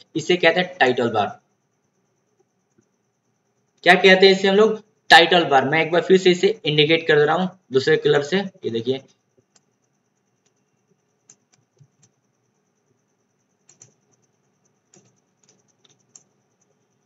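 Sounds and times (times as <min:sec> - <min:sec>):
computer mouse clicks: 0:09.3 - 0:12.3, 0:12.9 - 0:16.9.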